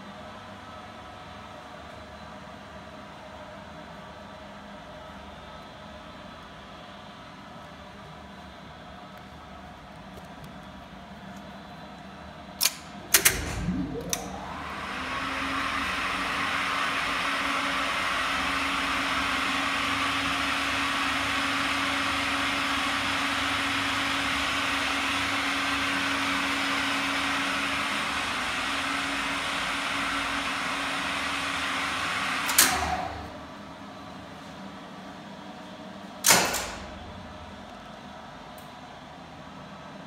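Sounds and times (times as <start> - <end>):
elevator motor humming and whirring: 0.3 - 40.0.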